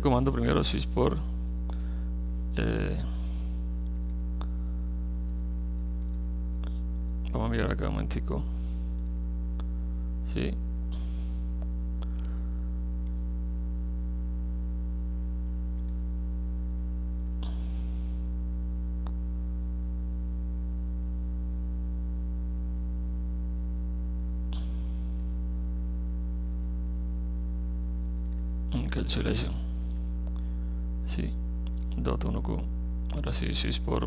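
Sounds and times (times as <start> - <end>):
low mains hum: 0.0 - 34.0
computer keys typing: 5.2 - 6.4, 15.7 - 16.0.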